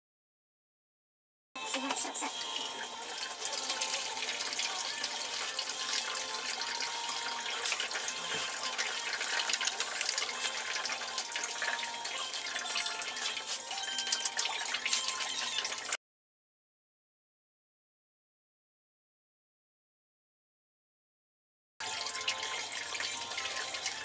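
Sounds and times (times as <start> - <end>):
tap water running into sink: 1.7 - 16.0, 21.8 - 24.0.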